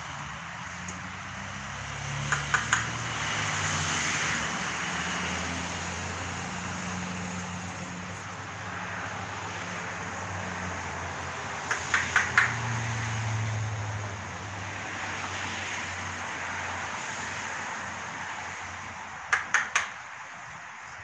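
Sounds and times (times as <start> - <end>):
ratchet wrench clicking: 2.3 - 3.0.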